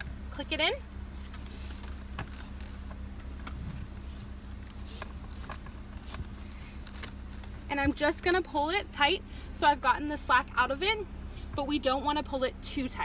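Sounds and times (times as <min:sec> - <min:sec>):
steady low hum: 0:00.0 - 0:13.0
strap rustling: 0:01.0 - 0:08.3.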